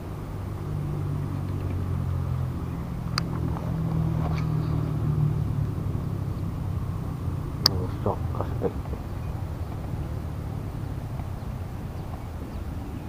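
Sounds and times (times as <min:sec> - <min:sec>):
low engine-like hum: 0:00.0 - 0:13.0
faint ticks: 0:03.1 - 0:04.9.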